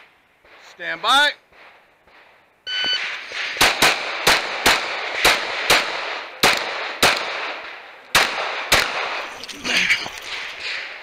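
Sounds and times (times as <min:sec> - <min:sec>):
pistol shots: 0:01.5 - 0:09.4.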